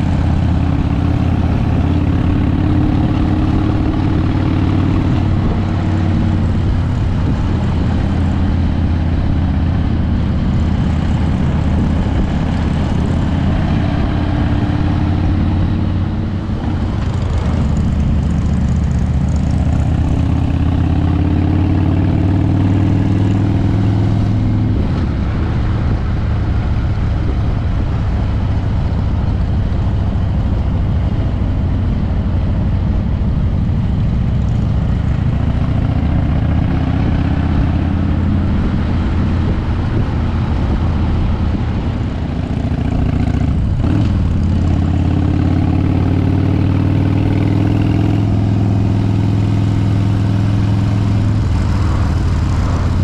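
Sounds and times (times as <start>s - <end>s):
wind on microphone: 0.0s - 20.2s, 37.0s - 44.7s
motorcycle engine running: 0.0s - 53.0s.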